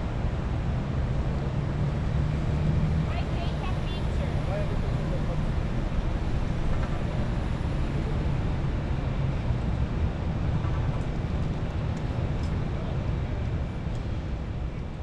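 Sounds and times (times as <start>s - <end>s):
street traffic: 0.0s - 15.0s
vehicle engine rumble: 0.0s - 15.0s.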